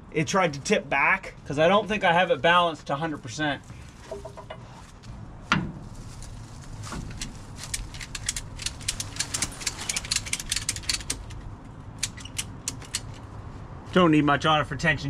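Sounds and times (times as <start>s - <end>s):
ratchet buckle clicking: 7.7s - 11.4s, 12.0s - 13.2s.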